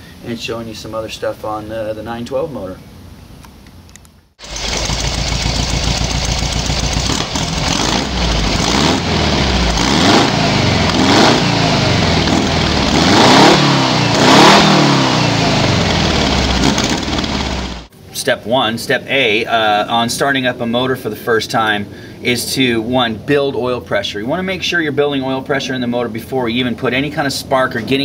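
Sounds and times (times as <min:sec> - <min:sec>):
engine revving: 0:04.4 - 0:17.9.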